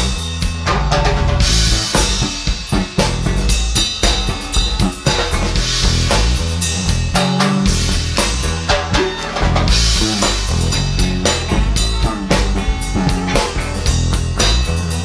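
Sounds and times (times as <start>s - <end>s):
drum kit beat: 0.0s - 15.0s
electric bass guitar line: 0.0s - 15.0s.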